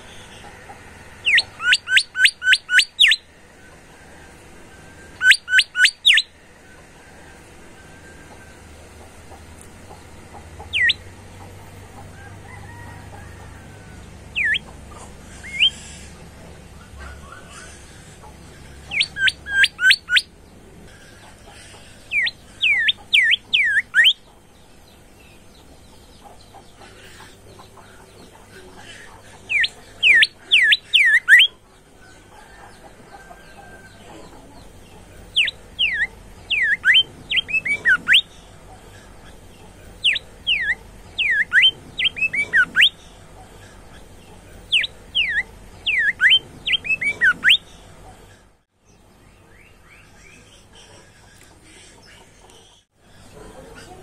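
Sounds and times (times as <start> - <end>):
bird singing whistled notes: 1.2 - 3.3, 5.0 - 6.3, 10.8 - 11.0, 14.4 - 14.7, 18.9 - 20.3, 22.2 - 24.2, 35.4 - 38.3, 40.0 - 43.0, 44.7 - 47.7.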